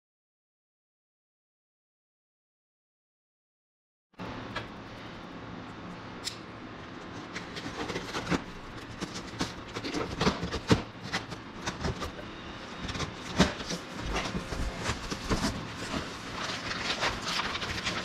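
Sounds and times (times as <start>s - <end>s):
steady low hum: 4.2s - 18.0s
knife cutting packing tape: 7.2s - 12.2s
cardboard rustling and knocking: 12.8s - 18.0s.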